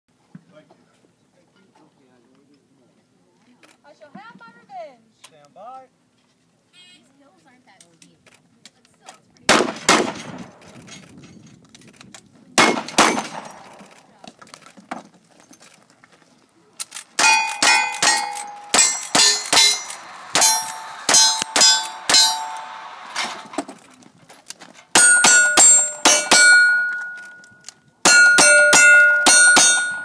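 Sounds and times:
rifle shots: 9.5 - 10.7, 12.6 - 14.0, 17.2 - 23.7
steel targets ringing: 17.2 - 23.7, 25.0 - 30.0.

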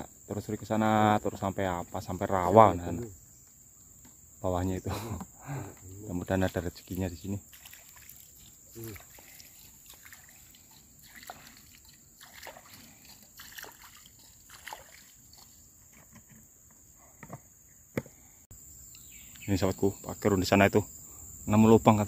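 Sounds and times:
water sloshing and splashing: 6.3 - 16.2.

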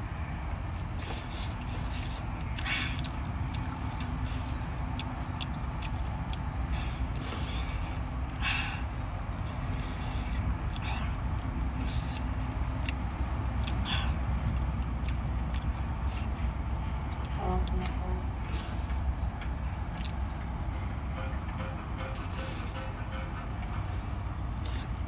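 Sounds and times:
low background rumble: 0.0 - 25.0
wet eating slurps: 0.9 - 8.4, 9.3 - 16.4.

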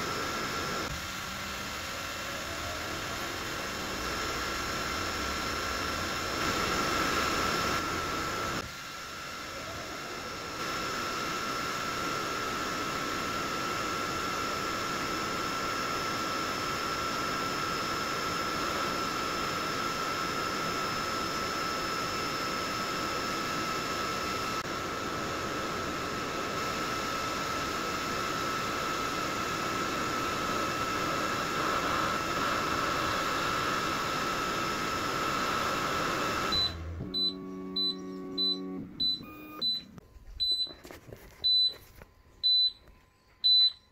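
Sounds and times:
laser cutter fans humming: 0.0 - 43.9
fast high-pitched alarm beeping: 36.5 - 40.7.

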